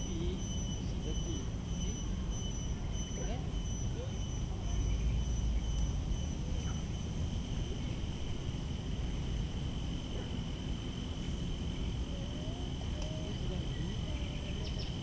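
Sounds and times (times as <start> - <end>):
constant low rumble: 0.0 - 15.0
insects droning: 0.0 - 15.0.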